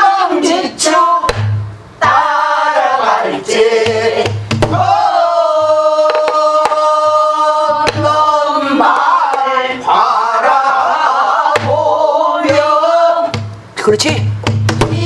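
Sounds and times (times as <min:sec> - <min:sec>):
voices singing together: 0:00.0 - 0:13.6, 0:14.8 - 0:15.0
deep hand beats on drum: 0:03.8 - 0:06.8.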